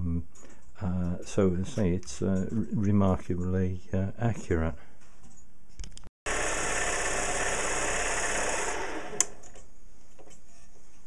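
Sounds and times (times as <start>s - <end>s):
small lathe running: 6.3s - 9.5s.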